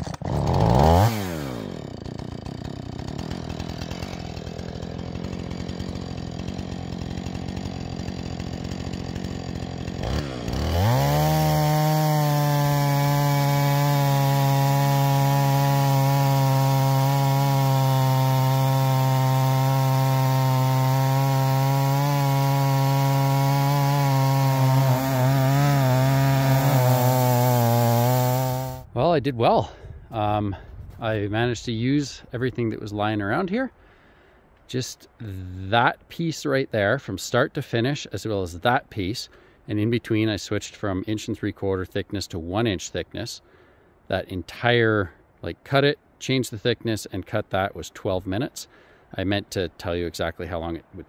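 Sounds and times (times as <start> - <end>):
chainsaw idling and revving: 0.0 - 28.9
chainsaw ripping a log: 0.0 - 28.9.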